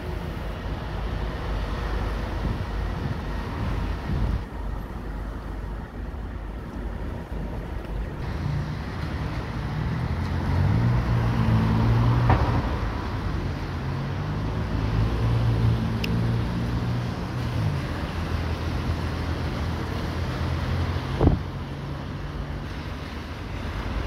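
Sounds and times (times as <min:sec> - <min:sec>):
cars on wet tarmac: 0:00.0 - 0:24.0
vehicle engines humming: 0:00.0 - 0:24.0.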